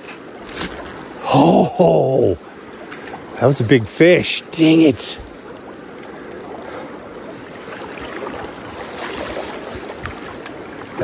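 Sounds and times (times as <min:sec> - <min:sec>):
river water rushing over riffle: 0:00.0 - 0:11.0.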